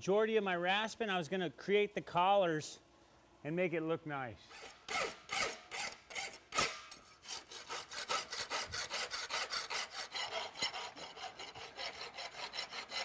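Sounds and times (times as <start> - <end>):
rasp filing metal: 4.5 - 13.0.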